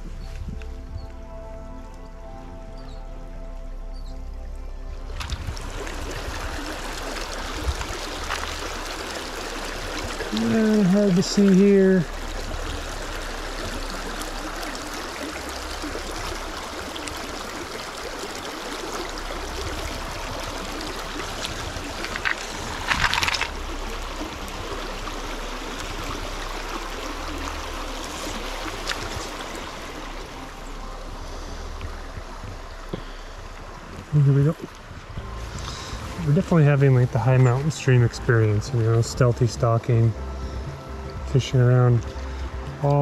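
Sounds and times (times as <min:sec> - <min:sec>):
stream flowing over rocks: 0:00.0 - 0:43.0.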